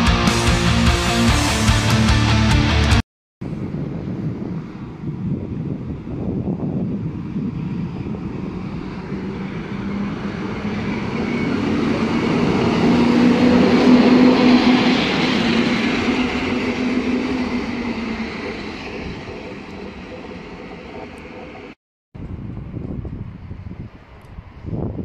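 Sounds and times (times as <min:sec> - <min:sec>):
electric locomotive hum: 0:00.0 - 0:25.0
train wheels on rails: 0:06.6 - 0:21.8.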